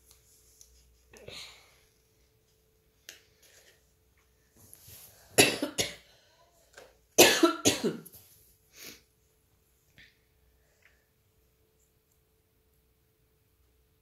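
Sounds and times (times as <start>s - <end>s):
person coughing: 5.4s - 6.1s, 7.2s - 8.1s.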